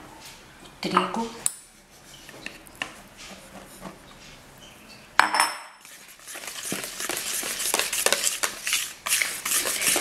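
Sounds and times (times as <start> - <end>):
wire whisk scraping in bowl: 5.8 - 10.0.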